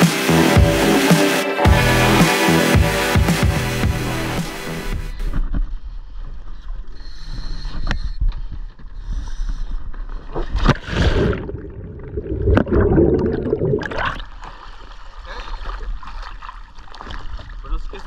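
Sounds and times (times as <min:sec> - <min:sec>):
rushes of water: 0:10.3 - 0:18.0
water splashing and gurgling: 0:10.3 - 0:18.0.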